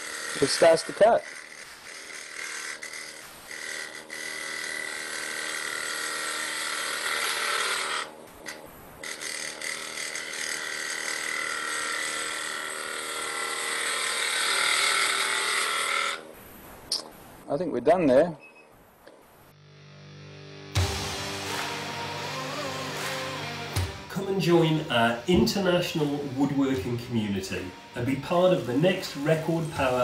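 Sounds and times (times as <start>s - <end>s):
lathe motor hum: 0.0s - 8.1s, 9.0s - 16.2s
gouge cutting wood on lathe: 0.0s - 16.2s, 21.4s - 30.0s.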